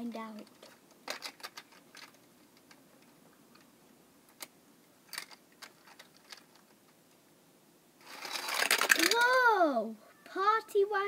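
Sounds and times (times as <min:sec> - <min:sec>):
toy cars clicking on plastic: 0:00.3 - 0:03.7, 0:05.1 - 0:06.8, 0:08.0 - 0:09.4.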